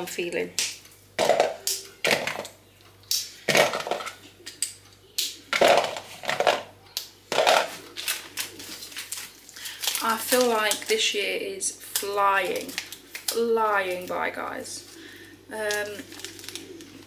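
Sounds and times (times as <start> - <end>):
chocolate bars snapping: 3.1 - 11.0, 11.9 - 14.0, 15.6 - 17.0.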